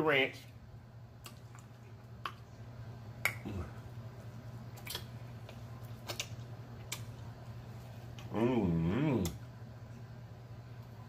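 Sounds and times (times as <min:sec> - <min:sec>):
steady low hum: 0:00.0 - 0:11.0
wet chewing mouth smacks: 0:04.7 - 0:07.3.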